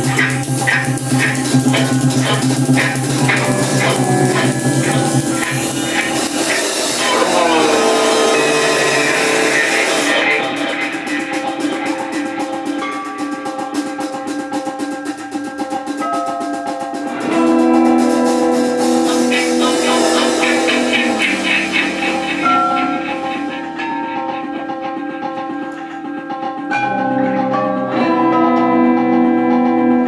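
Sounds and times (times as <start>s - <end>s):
fast ticking pulse: 0.0s - 15.1s, 17.3s - 26.1s
experimental ensemble music: 0.0s - 30.0s.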